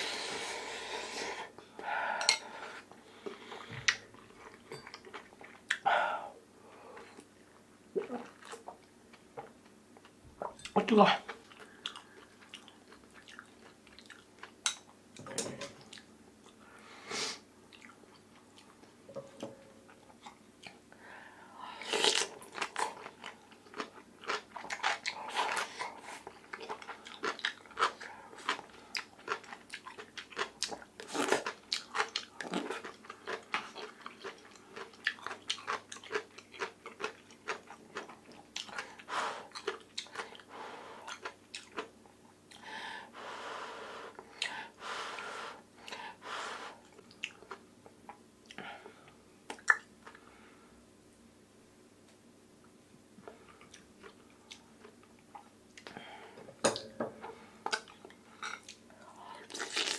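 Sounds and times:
chewing with soft crunching: 2.8s - 5.9s, 7.0s - 15.0s, 17.7s - 19.0s, 19.9s - 20.9s, 22.0s - 42.6s, 46.7s - 50.4s, 52.6s - 56.1s, 57.2s - 59.9s.

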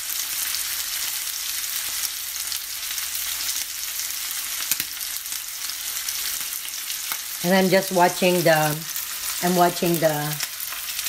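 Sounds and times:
steak sizzling in a frying pan: 0.0s - 11.0s.

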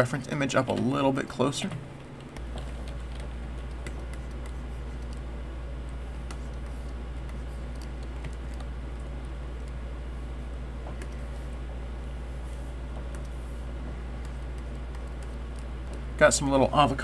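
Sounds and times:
steady low hum: 0.0s - 17.0s
computer keyboard and mouse clicks: 2.0s - 9.8s, 14.2s - 16.0s.

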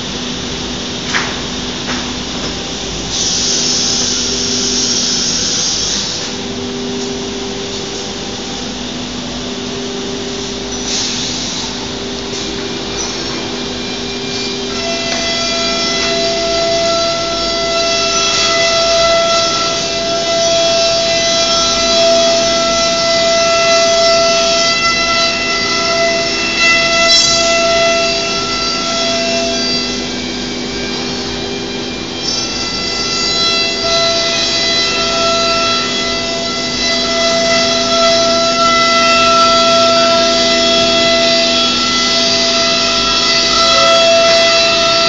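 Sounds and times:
router spindle high whine: 0.0s - 45.0s
cutting and dust extraction hiss: 0.1s - 45.0s.

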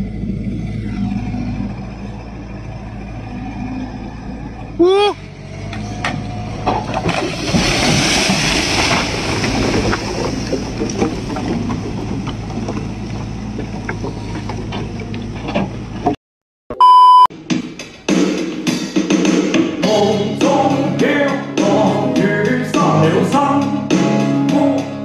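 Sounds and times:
rushing crash: 6.5s - 14.8s
short electronic beep: 16.7s - 17.3s.

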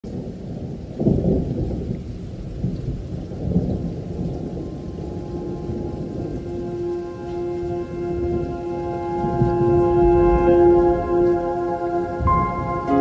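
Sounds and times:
rain: 0.0s - 13.0s
low thunder-like rumble: 0.1s - 13.0s
steady tone: 5.2s - 13.0s.

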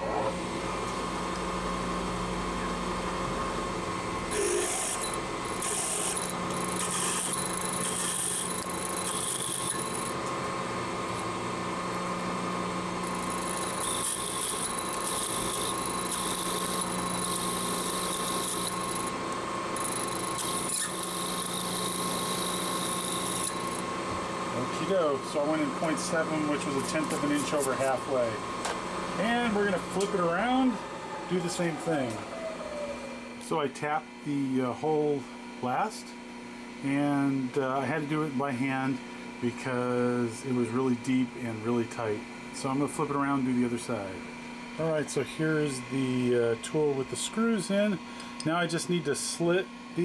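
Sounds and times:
milling machine spindle running: 4.2s - 32.2s
drill cutting metal hiss: 4.3s - 10.2s, 13.0s - 19.1s, 19.8s - 23.8s.

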